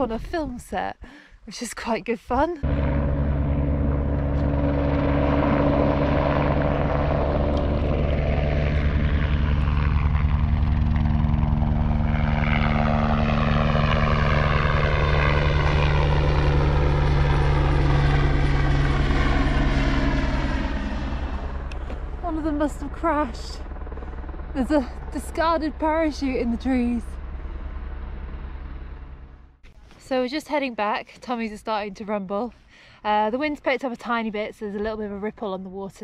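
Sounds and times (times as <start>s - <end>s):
helicopter rotor chop: 2.6s - 30.4s.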